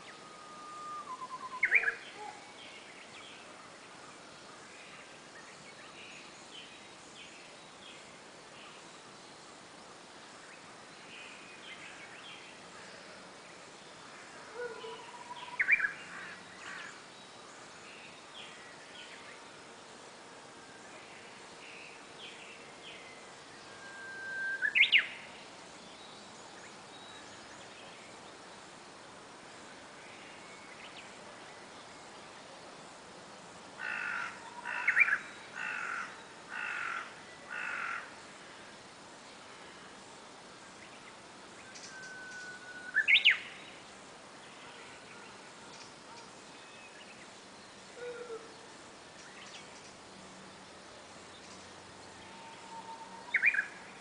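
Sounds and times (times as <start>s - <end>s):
faint bird chirps: 0.0s - 7.9s, 14.5s - 19.6s, 20.8s - 28.4s, 40.8s - 43.8s, 51.3s - 54.0s
bush warbler singing: 1.0s - 19.5s, 20.8s - 54.0s
crow cawing: 33.8s - 38.1s.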